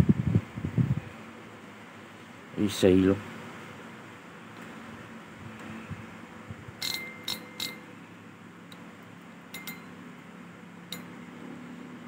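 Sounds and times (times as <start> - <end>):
short metallic ring: 6.8 - 8.1, 9.5 - 10.1, 10.9 - 11.4.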